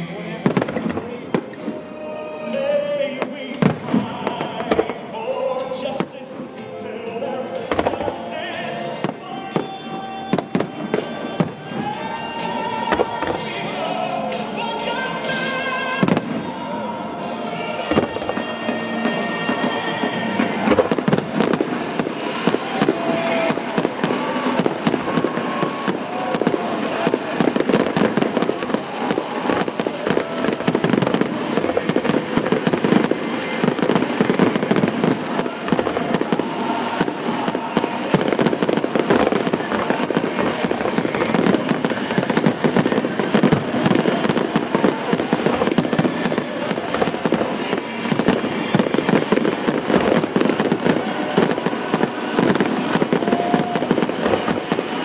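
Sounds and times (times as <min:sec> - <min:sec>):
fireworks bursting and crackling: 0:00.0 - 0:55.0.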